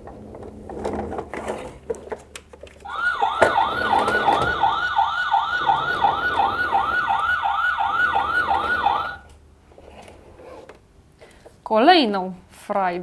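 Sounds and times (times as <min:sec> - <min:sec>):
toy fire truck electronic siren: 0:02.8 - 0:09.3.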